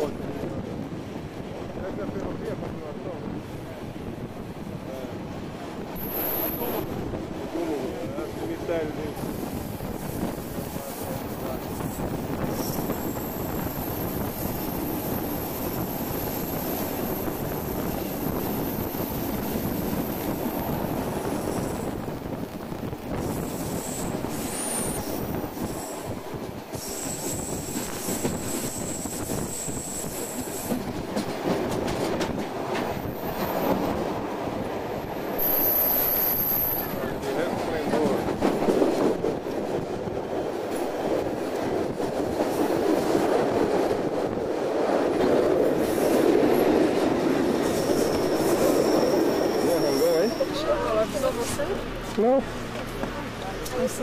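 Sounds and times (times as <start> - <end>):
train wheels rumbling on rails: 0.0 - 54.0
wheels squealing on curve: 47.6 - 50.8.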